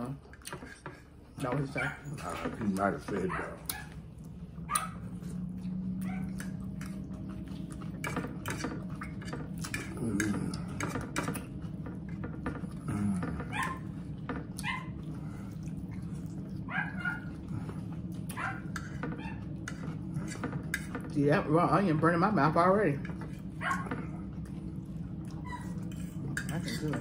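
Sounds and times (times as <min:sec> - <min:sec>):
chewing and crunching salad: 0:00.2 - 0:21.2.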